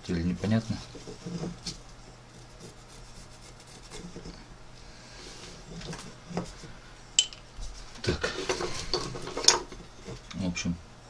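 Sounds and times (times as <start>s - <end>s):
pencil rubbing on wood: 0.8s - 4.4s.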